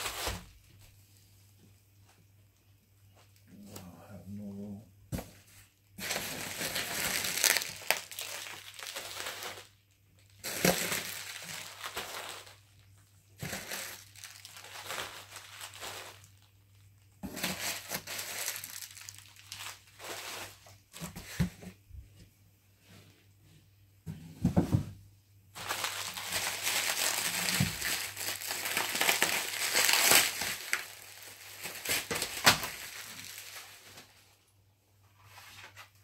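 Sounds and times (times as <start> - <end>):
bubble wrap crinkling: 0.0 - 0.9, 5.6 - 21.5, 25.5 - 34.5.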